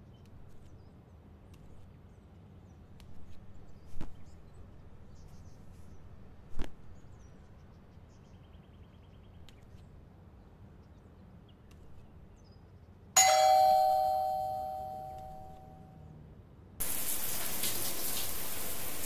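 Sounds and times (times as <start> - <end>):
metallic bell-like ding: 13.2 - 15.8.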